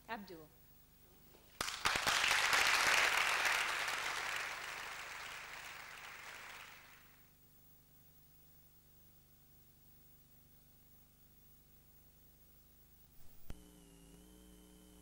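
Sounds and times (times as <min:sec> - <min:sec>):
audience applauding: 0:01.6 - 0:07.2.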